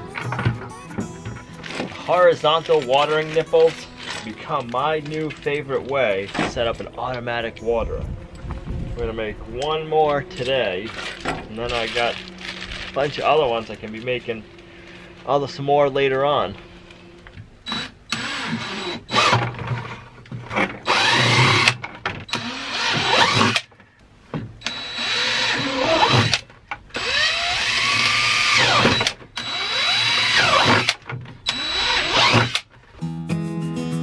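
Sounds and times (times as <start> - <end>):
power drill boring through plastic: 9.2 - 15.1, 17.6 - 20.0, 20.6 - 23.7, 24.6 - 32.7.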